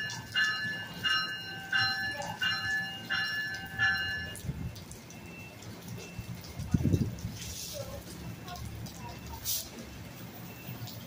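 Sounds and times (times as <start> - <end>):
train warning bell ringing: 0.0 - 4.5.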